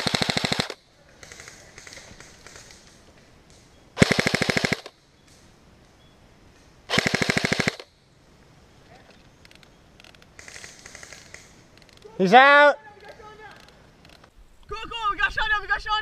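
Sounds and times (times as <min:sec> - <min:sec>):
airsoft rifle full-auto bursts: 0:00.0 - 0:02.7, 0:04.0 - 0:04.9, 0:06.9 - 0:07.9
faint firing clicks: 0:09.0 - 0:12.1.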